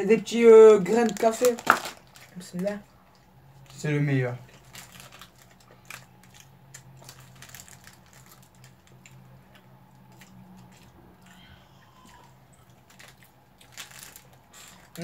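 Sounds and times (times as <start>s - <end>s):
low steady hum: 0.0s - 15.0s
plastic snack wrapper rustling: 0.7s - 2.9s, 3.6s - 11.4s, 12.0s - 15.0s
quiet chewing: 4.4s - 15.0s.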